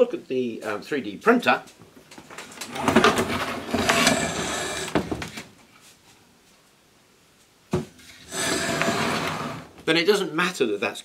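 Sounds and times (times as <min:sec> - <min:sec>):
scraping on wooden bench: 0:02.7 - 0:05.5, 0:08.0 - 0:09.8.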